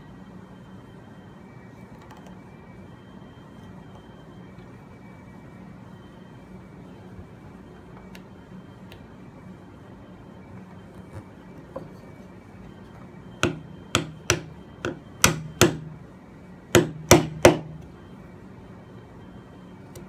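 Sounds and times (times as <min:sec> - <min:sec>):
hammer striking chisel into wood: 0:13.4 - 0:16.0, 0:16.8 - 0:17.8.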